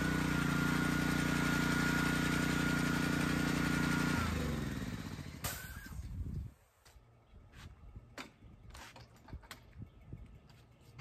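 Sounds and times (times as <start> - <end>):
pressure washer engine running: 0.0 - 6.0.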